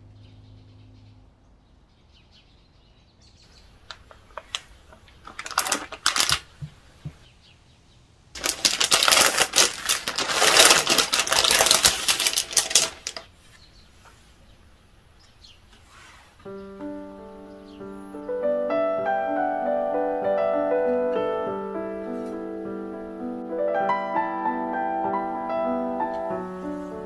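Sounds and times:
packaging crinkling: 3.8s - 7.2s, 8.4s - 13.3s.

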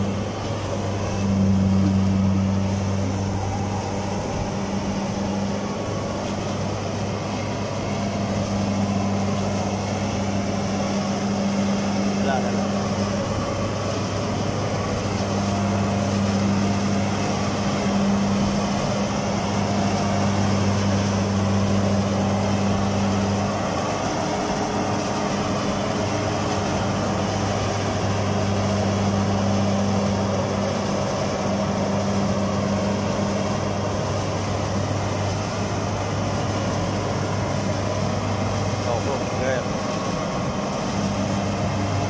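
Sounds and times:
diesel engine running under load: 0.0s - 42.0s.

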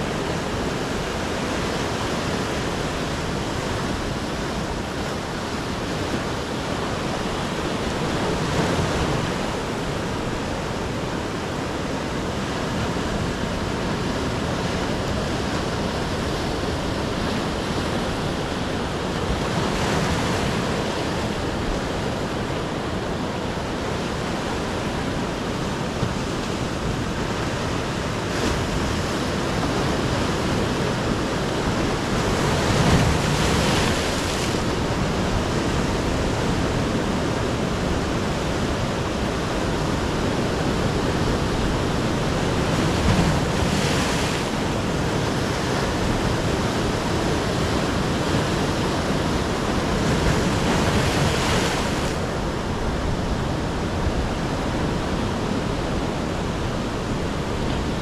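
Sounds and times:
surf washing onto rocky beach: 0.0s - 54.8s
wave crashing: 13.2s - 58.0s.

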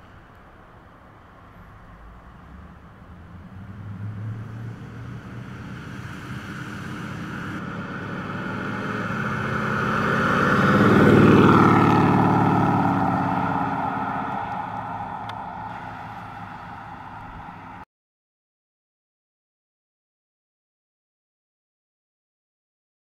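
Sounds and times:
pickup truck driving past: 1.5s - 17.8s.

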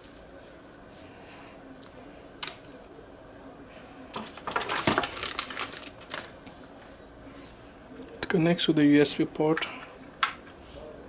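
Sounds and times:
plastic wrapping rustling: 4.1s - 6.6s.

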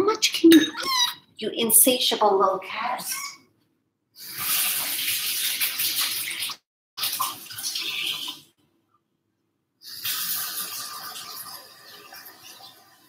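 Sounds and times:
running water: 4.2s - 8.5s, 9.8s - 13.0s.

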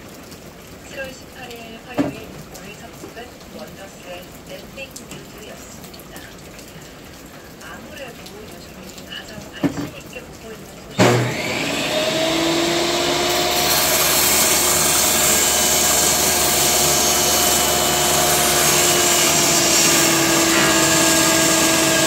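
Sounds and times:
table saw motor whining: 11.0s - 22.0s.

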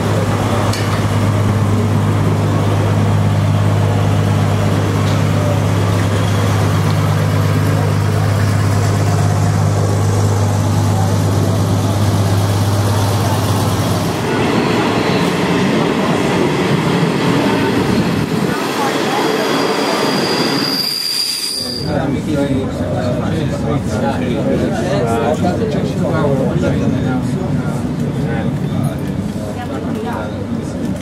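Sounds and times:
low machine drone: 0.0s - 20.5s
electric train rumbling on rails: 0.0s - 31.0s.

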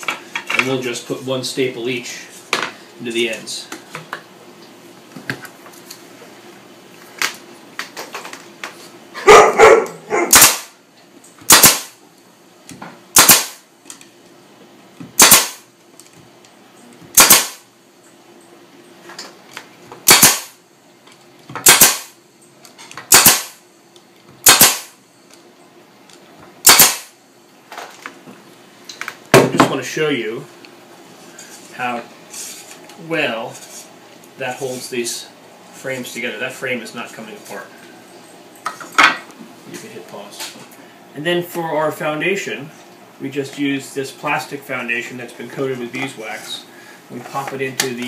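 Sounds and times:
staple gun shots into wood: 10.3s - 10.7s, 11.5s - 11.9s, 13.2s - 13.6s, 15.2s - 15.6s, 17.2s - 17.6s, 20.1s - 20.5s, 21.6s - 22.1s, 23.1s - 23.6s, 24.4s - 24.9s, 26.6s - 27.1s.

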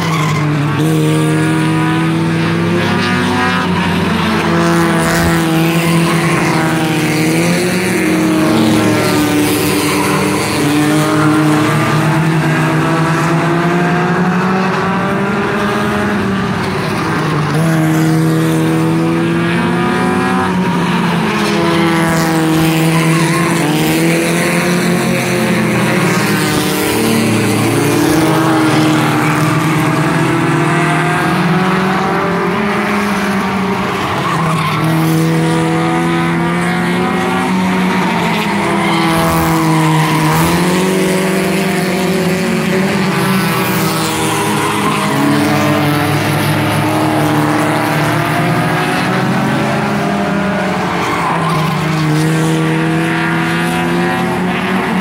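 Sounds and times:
race car engines passing: 0.0s - 55.0s.

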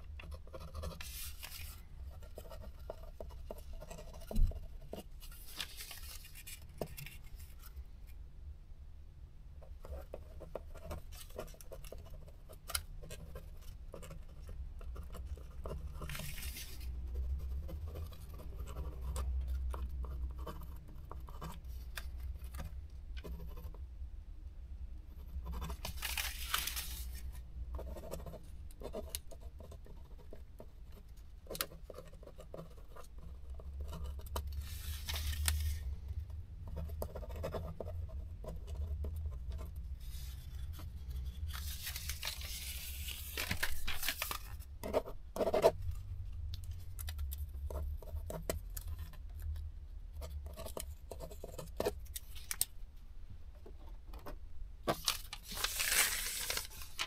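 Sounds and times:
pen scratching on paper: 0.0s - 5.4s, 9.8s - 21.8s, 22.5s - 23.8s, 25.1s - 25.9s, 27.8s - 34.9s, 36.7s - 41.7s, 44.8s - 45.8s
paper rustling: 0.8s - 1.8s, 3.5s - 7.8s, 16.0s - 16.9s, 25.6s - 27.4s, 34.5s - 35.9s, 40.0s - 44.6s, 54.9s - 57.0s.

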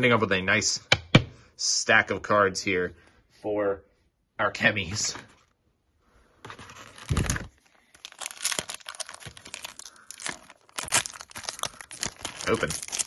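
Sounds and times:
foil pack crinkling and tearing: 6.5s - 13.0s.

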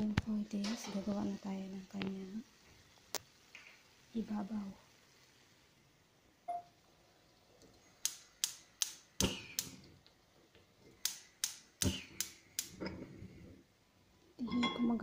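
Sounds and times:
gas hob igniter clicking: 8.0s - 9.8s, 11.0s - 12.9s.

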